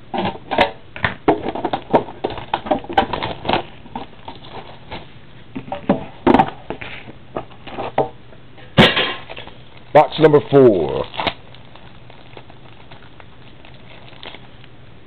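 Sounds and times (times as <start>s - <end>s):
foil wrapper crinkling: 1.5s - 5.2s, 9.2s - 14.8s.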